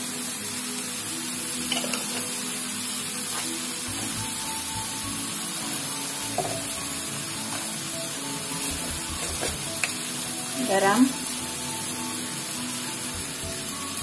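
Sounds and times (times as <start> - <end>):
chutney sizzling in a frying pan: 0.0 - 14.0.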